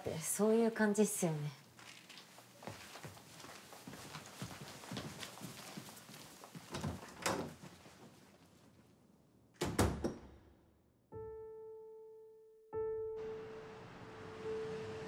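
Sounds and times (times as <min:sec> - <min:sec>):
footsteps: 0:01.7 - 0:08.5
door shutting with a thud: 0:09.6 - 0:10.5
piano note ringing: 0:11.2 - 0:15.0
soft background music: 0:12.8 - 0:15.0.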